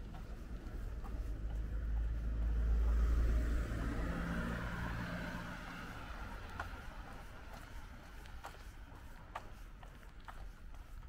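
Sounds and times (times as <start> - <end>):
car driving past: 1.7 - 7.8.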